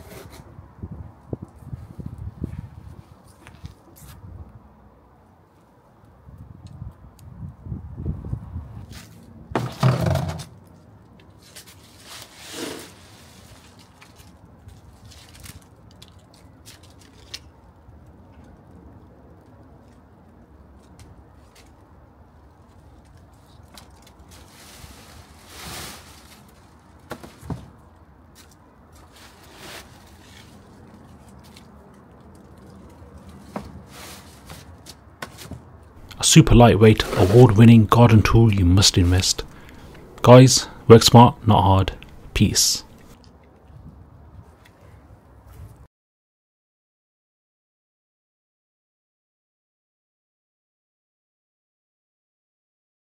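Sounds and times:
dry leaves rustling and crackling: 0:11.4 - 0:17.4, 0:23.6 - 0:27.0.

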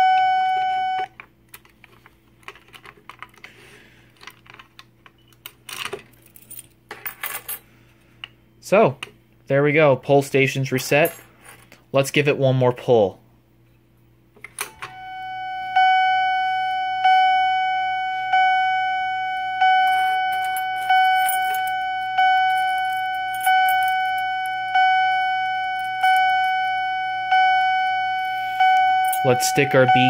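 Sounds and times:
fire alarm chime ringing: 0:00.0 - 0:01.1, 0:14.8 - 0:30.0.

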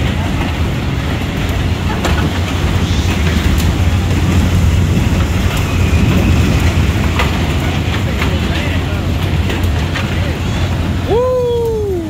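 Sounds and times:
ride low rumble: 0:00.0 - 0:12.0.

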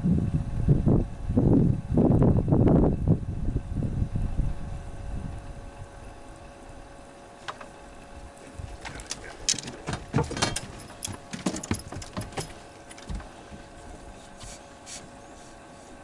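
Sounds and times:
faint steady hum: 0:00.0 - 0:16.0
clicks and knocks on boat deck: 0:07.4 - 0:07.8, 0:08.4 - 0:14.0.

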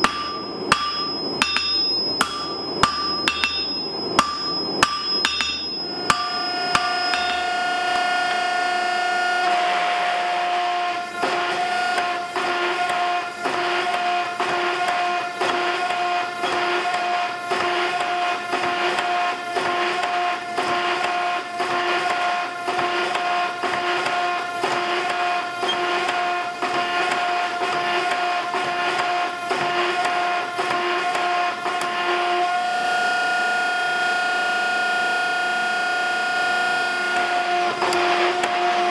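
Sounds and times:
hammer blows on anvil: 0:00.0 - 0:08.8
hydraulic press motor hum: 0:00.0 - 0:38.9.

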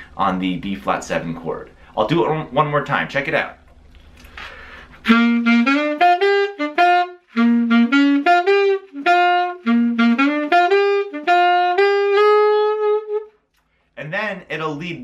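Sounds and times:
saxophone blues line: 0:04.5 - 0:13.4.

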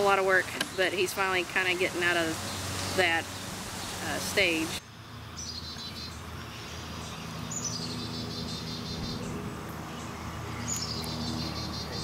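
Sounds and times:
songbird singing: 0:00.0 - 0:12.0.

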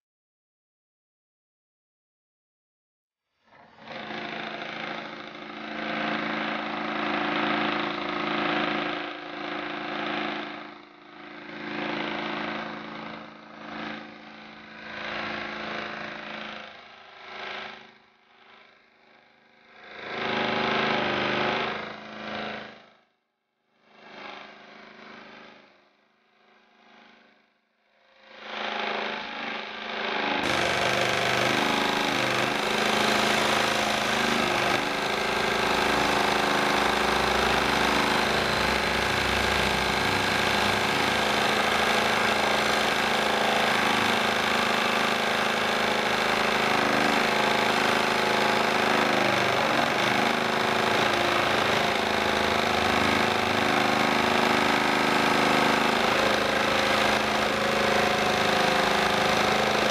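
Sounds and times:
scroll saw cutting wood: 0:03.5 - 0:16.5, 0:19.8 - 0:22.8, 0:28.3 - 0:59.9.

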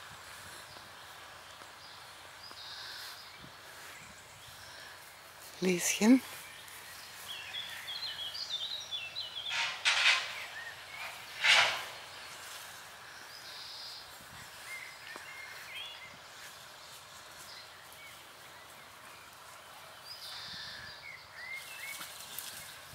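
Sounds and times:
birds chirping: 0:00.0 - 0:22.9
short noisy swishes: 0:09.5 - 0:12.7.

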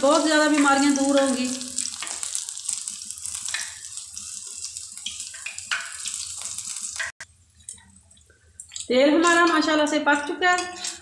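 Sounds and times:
oil sizzling and crackling: 0:00.0 - 0:11.0.

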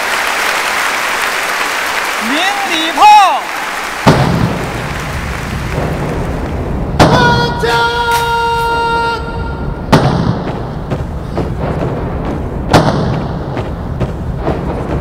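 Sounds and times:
salute guns firing: 0:04.0 - 0:04.9, 0:07.0 - 0:08.8, 0:09.8 - 0:15.0.

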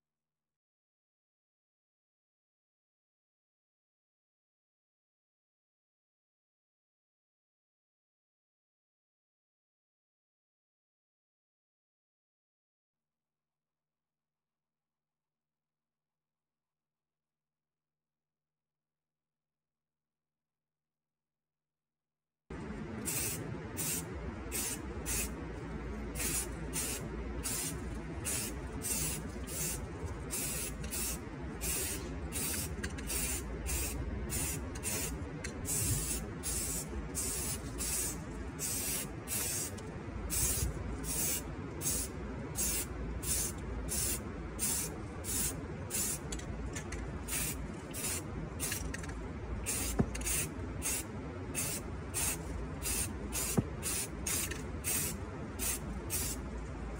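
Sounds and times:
steady low rumble: 0:22.5 - 0:56.9
aerosol spray can hissing: 0:23.0 - 0:25.3, 0:26.2 - 0:46.2, 0:47.3 - 0:48.9, 0:49.7 - 0:51.0, 0:51.6 - 0:56.4.

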